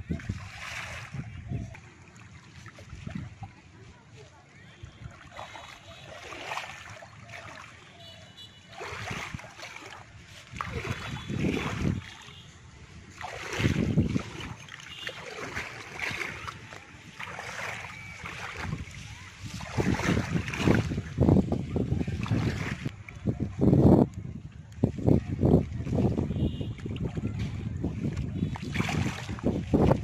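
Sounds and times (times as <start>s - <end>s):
water splashing and sloshing: 0.0s - 30.0s.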